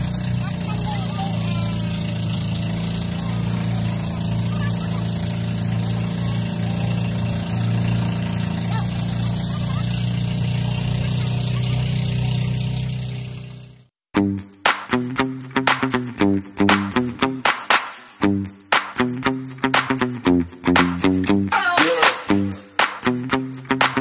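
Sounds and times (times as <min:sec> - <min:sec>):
boat engine running: 0:00.0 - 0:13.9.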